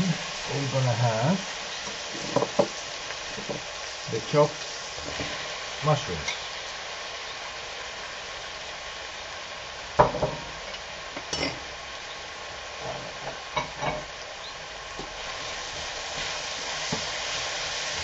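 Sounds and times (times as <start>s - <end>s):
vegetables sizzling in frying pan: 0.0s - 18.0s
wooden spoon knocking and scraping pan: 2.0s - 2.8s, 16.2s - 17.4s.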